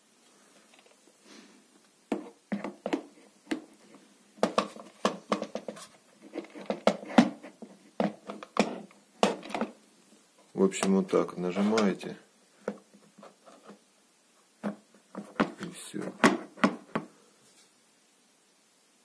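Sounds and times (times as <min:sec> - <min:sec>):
plastic parts knocking and clicking: 0:02.1 - 0:09.8, 0:12.6 - 0:13.8, 0:14.6 - 0:17.1.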